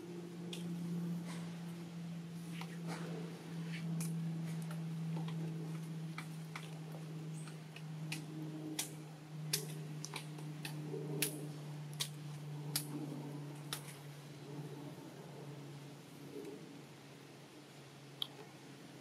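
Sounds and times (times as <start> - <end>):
steady low hum: 0.0 - 19.0
sharp irregular clicks: 7.4 - 13.0.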